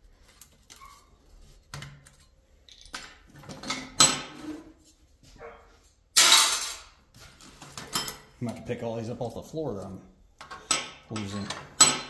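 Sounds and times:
dog barking: 5.4 - 5.8.

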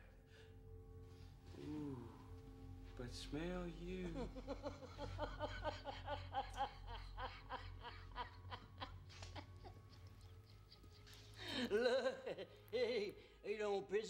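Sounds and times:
low steady hum: 0.0 - 14.0
man laughing hard: 4.0 - 12.6.

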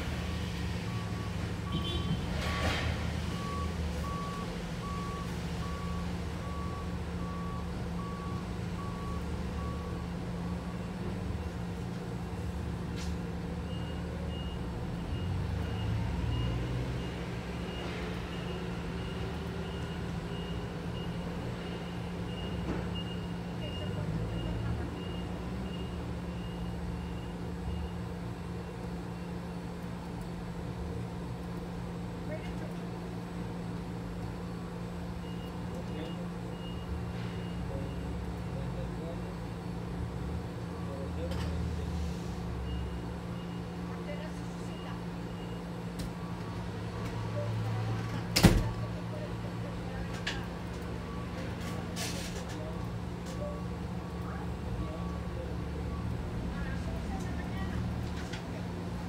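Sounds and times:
reversing alarm beeping: 0.8 - 11.5, 13.6 - 28.0, 35.2 - 38.3, 42.6 - 47.7.

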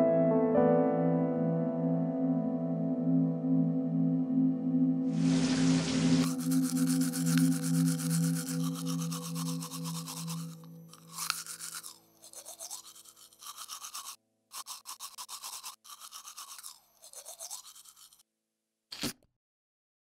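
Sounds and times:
toothbrush scrubbing teeth: 5.2 - 18.2.

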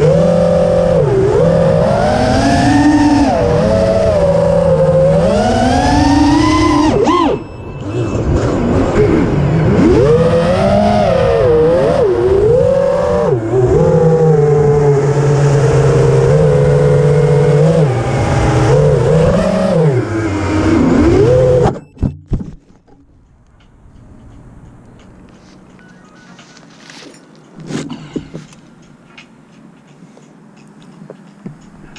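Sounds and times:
drone motors whining: 0.0 - 22.2.

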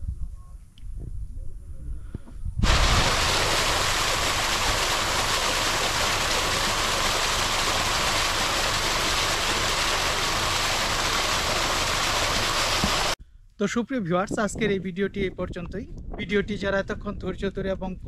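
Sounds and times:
water gushing from pipe: 2.6 - 13.2.

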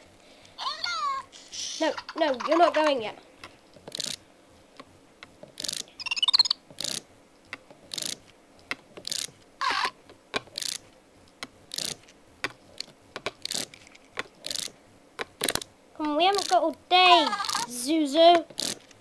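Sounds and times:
toy rattling over ridged plastic: 3.8 - 4.2, 5.4 - 7.0, 7.8 - 8.2, 9.0 - 9.4, 10.4 - 10.8, 11.7 - 12.1, 12.7 - 14.7, 15.3 - 17.7, 18.3 - 19.0
wavering electronic chirp: 5.9 - 6.6.

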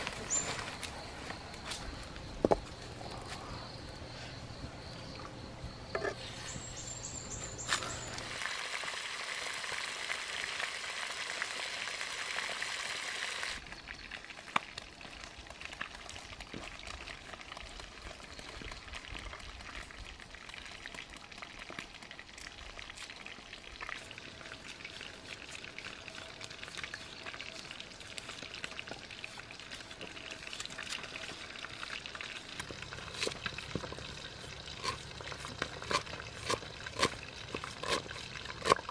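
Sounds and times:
outdoor background: 0.0 - 38.9
fish sizzling in a pan: 8.3 - 18.2.

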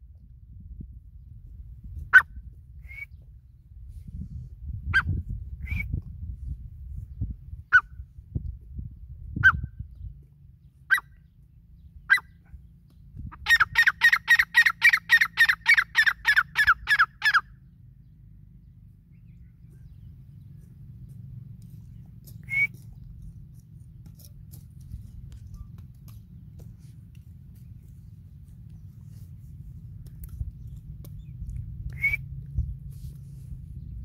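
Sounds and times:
francolin calling: 13.4 - 17.5.

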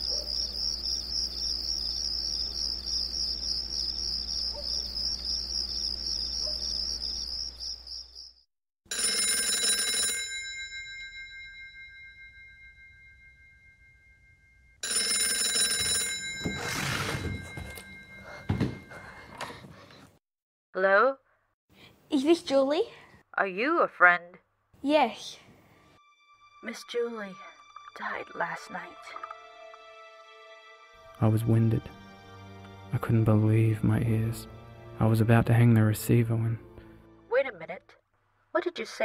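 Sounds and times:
crickets chirping: 0.0 - 8.4
telephone bell ringing: 8.9 - 19.4.

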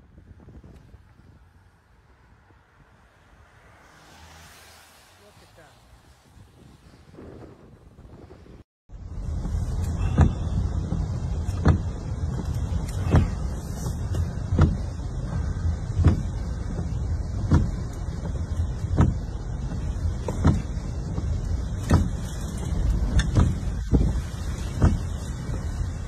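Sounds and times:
car rumble: 0.0 - 26.0
windshield wipers sweeping: 0.6 - 26.0
heavy rain: 9.1 - 26.0.

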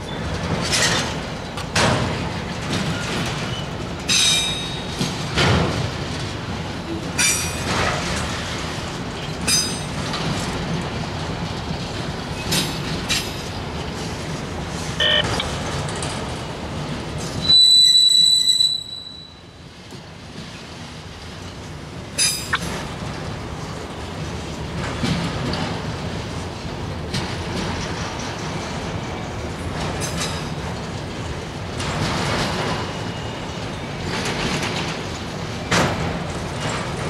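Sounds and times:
train wheels rumbling on rails: 0.0 - 37.0
clacks over rail joints: 0.2 - 17.4, 19.8 - 37.0
metallic wheel squeal: 17.4 - 19.5.

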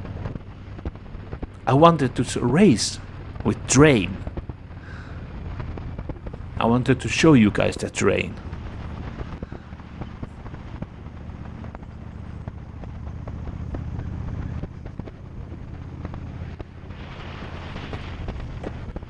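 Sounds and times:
motorcycle engine running: 0.0 - 1.8, 2.4 - 19.0.

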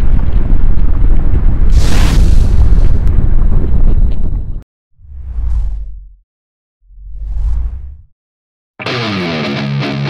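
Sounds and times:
deep explosion-like rumble: 0.0 - 6.2.

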